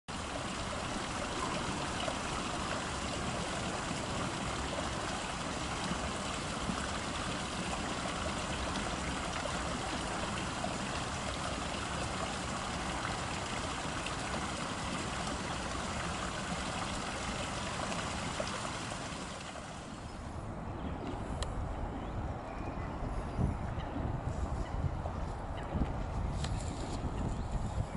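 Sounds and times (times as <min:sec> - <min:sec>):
running water: 0:00.1 - 0:20.4.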